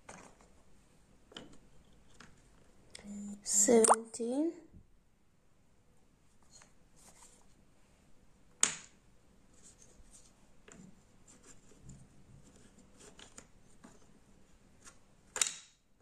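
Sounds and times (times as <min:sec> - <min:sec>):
faint taps and scrapes: 0:06.3 - 0:07.6, 0:09.5 - 0:14.2
wooden puzzle piece click: 0:15.3 - 0:15.8.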